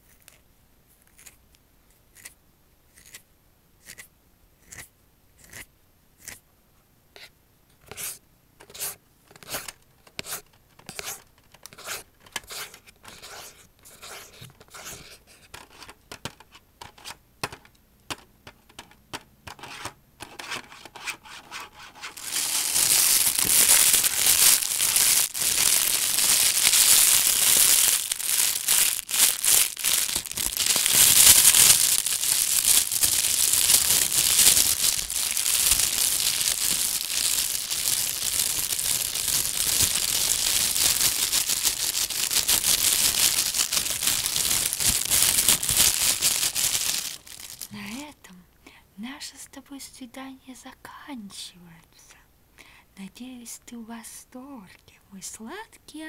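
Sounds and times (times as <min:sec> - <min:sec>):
rubbing against microphone: 0:19.6 - 0:26.7
faint scratching: 0:19.6 - 0:30.1.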